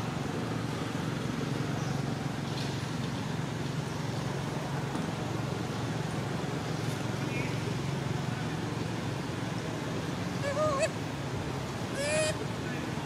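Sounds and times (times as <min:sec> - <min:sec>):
low mechanical rumble: 0:00.0 - 0:13.0.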